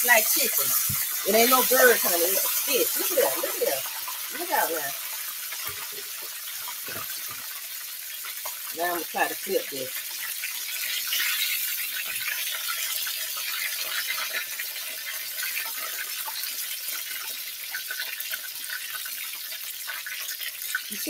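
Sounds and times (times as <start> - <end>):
fish sizzling in hot oil: 0.0 - 21.0.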